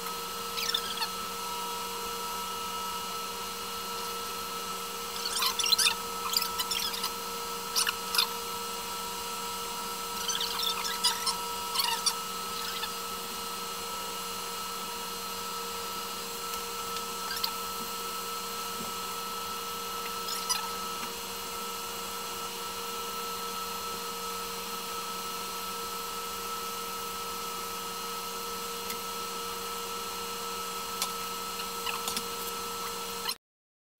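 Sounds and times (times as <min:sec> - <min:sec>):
electric hair clippers buzzing: 0:00.0 - 0:33.4
clippers crackling through hair: 0:31.0 - 0:33.0.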